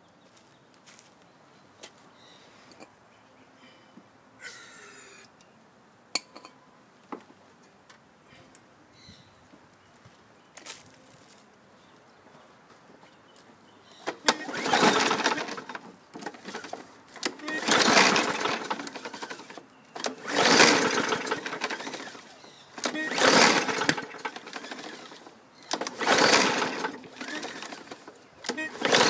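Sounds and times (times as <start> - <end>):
mower engine cranking without starting: 14.0 - 29.0.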